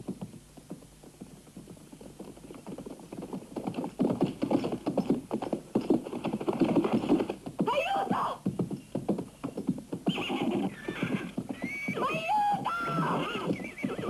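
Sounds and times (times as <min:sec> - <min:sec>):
horse hoofbeats: 0:00.0 - 0:14.0.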